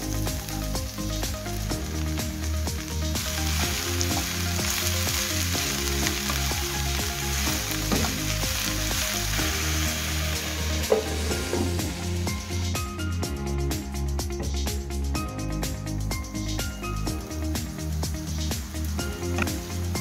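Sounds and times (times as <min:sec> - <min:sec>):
mushrooms sizzling in a pan: 0:00.0 - 0:12.6, 0:17.6 - 0:20.0
background music: 0:00.0 - 0:20.0.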